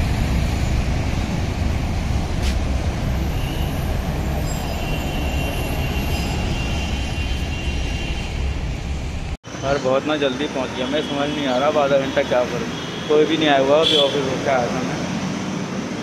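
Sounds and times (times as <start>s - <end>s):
traffic rumble: 0.0s - 16.0s
faint high squeal: 3.2s - 8.5s.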